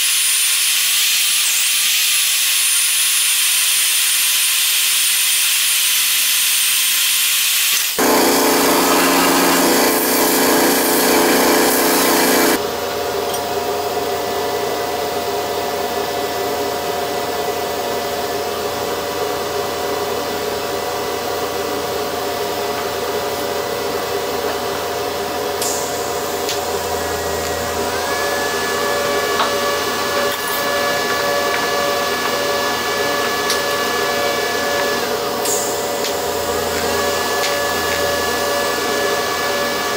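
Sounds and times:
band saw cutting steel tubing: 0:07.7 - 0:12.6, 0:23.4 - 0:39.9
power tool motor: 0:07.8 - 0:12.6, 0:25.3 - 0:39.9.

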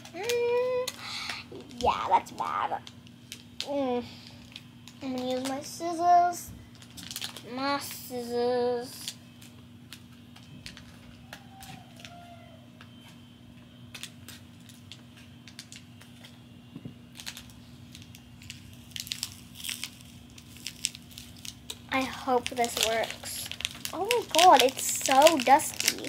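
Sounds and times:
scissors snipping packet: 0:04.5 - 0:05.6, 0:17.2 - 0:26.0.

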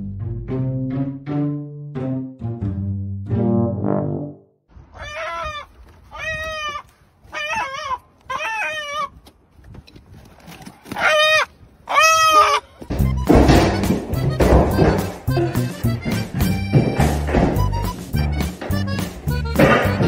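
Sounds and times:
chicken squawking: 0:04.9 - 0:09.2, 0:10.9 - 0:12.9.

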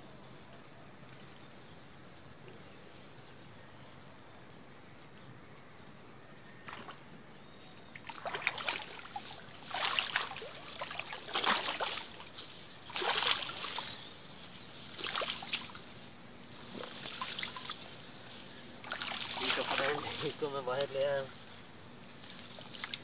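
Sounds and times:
splashing in shallow water: 0:06.6 - 0:07.0, 0:07.9 - 0:14.2, 0:14.8 - 0:18.1, 0:18.8 - 0:20.5, 0:22.2 - 0:23.0.

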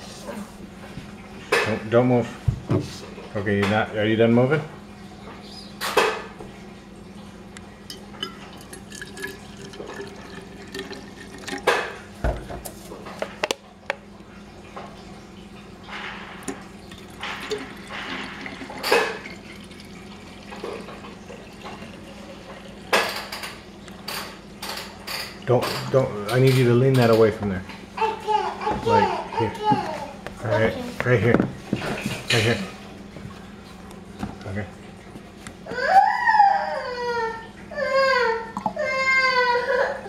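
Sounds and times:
water pouring into metal bottle: 0:08.2 - 0:11.7, 0:16.9 - 0:22.9.

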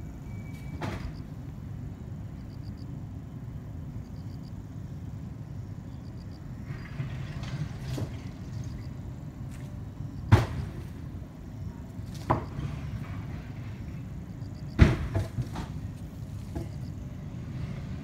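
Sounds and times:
steady low rumble: 0:00.0 - 0:18.0
sharp knocks: 0:10.3 - 0:11.0, 0:14.7 - 0:16.9.

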